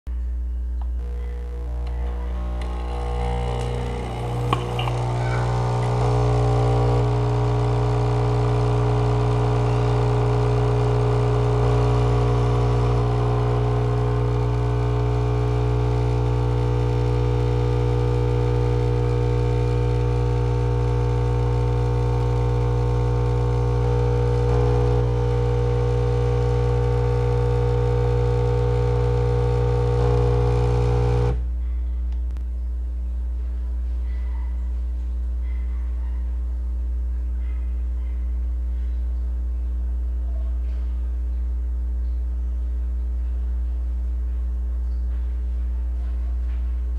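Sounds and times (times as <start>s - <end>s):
espresso machine pump buzzing: 0.8s - 31.5s.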